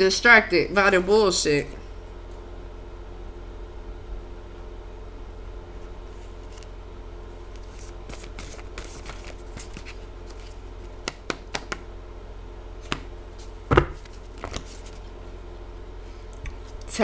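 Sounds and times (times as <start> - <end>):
steady low hum: 0.0 - 17.0
cards riffling: 7.5 - 11.8, 13.7 - 15.0
crisp card snaps: 11.0 - 11.8, 13.7 - 14.8.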